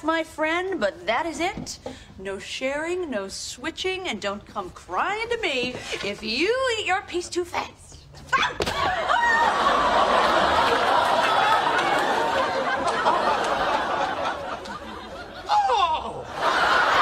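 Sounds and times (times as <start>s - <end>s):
studio audience laughing: 9.0s - 17.0s.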